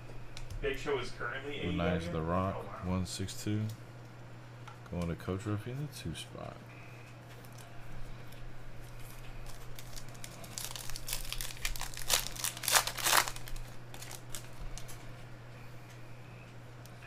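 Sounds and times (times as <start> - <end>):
foil wrapper tearing and crinkling: 8.9 - 15.0.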